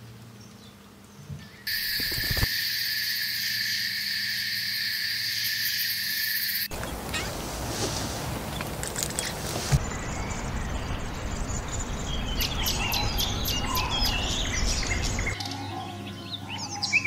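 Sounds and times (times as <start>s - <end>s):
high-pitched buzzing animal calls: 1.7s - 7.4s
rushing noise: 1.7s - 15.3s.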